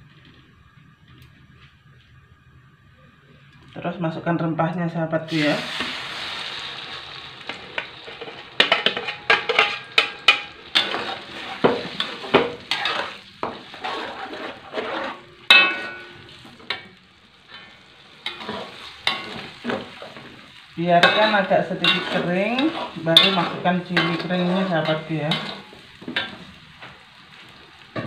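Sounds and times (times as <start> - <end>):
paste sizzling in hot oil: 5.3 - 28.0
metal spatula scraping wok: 7.8 - 16.8, 17.6 - 27.0.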